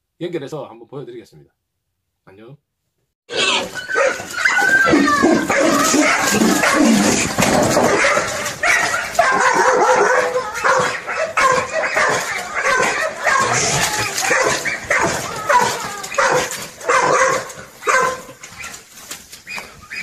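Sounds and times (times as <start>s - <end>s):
dog barking rapidly: 3.3s - 18.8s.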